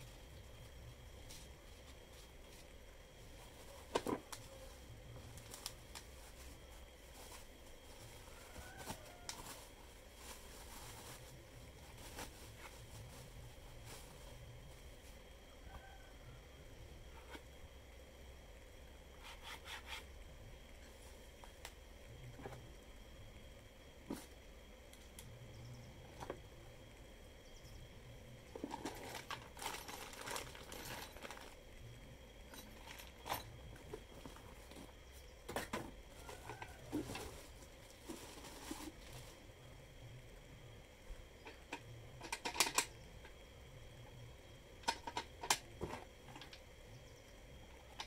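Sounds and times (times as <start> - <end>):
plastic wrapping rustling: 5.3 - 14.3, 28.7 - 31.6, 36.2 - 39.4.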